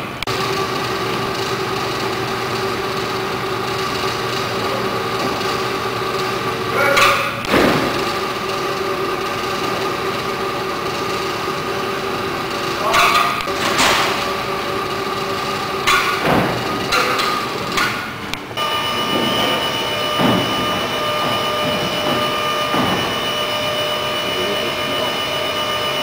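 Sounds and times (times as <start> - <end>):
crane hoist electric whine: 0.0 - 26.0
louder rising whine: 7.4 - 26.0.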